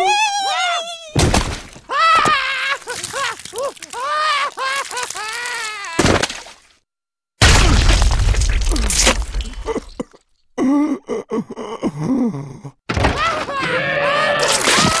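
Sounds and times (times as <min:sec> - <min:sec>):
heavy crashing stomp: 0:07.4 - 0:09.7
dinosaur growls and shrieks: 0:13.1 - 0:15.0.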